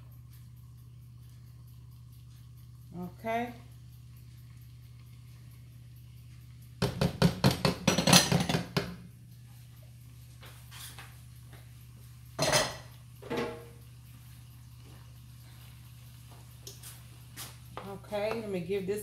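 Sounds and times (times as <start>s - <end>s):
utensils clattering against pots: 6.9s - 9.0s, 12.4s - 13.8s.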